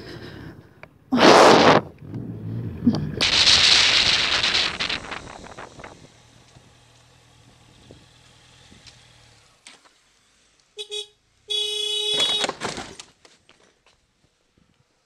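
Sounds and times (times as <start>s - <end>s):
vehicle horn toot and blast: 10.8s - 12.6s
knocks and clatter of collision: 12.2s - 13.2s.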